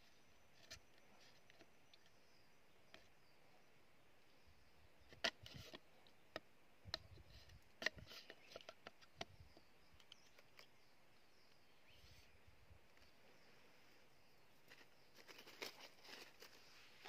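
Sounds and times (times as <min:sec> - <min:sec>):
bamboo sticks clicking and tapping: 0:02.9 - 0:03.1, 0:05.2 - 0:10.8.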